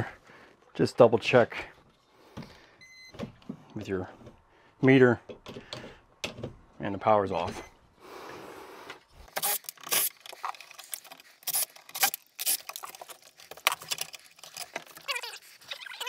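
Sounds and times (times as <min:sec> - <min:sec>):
cordless drill: 0:09.3 - 0:10.1
metal box clicking and scraping: 0:09.5 - 0:15.1.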